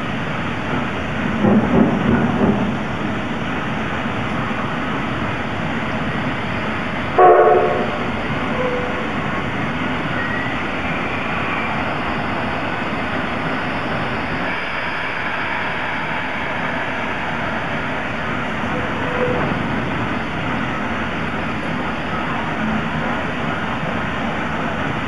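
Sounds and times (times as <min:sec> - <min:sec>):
steam locomotive hissing: 0:00.0 - 0:25.0
steam whistle toot: 0:07.2 - 0:09.1.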